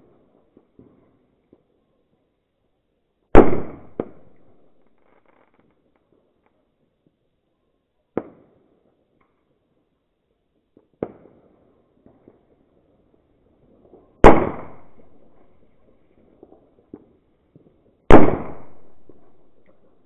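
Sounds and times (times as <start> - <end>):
faint firecracker pops: 3.3 - 6.6, 8.1 - 8.6, 10.7 - 12.5, 13.9 - 20.0
firecrackers banging: 18.1 - 19.9.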